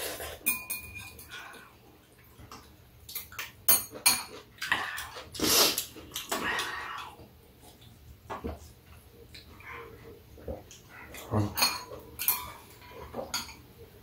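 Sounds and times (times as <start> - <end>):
chopsticks and spoons clicking bowls: 0.4 - 1.4
noisy slurps: 4.6 - 7.9.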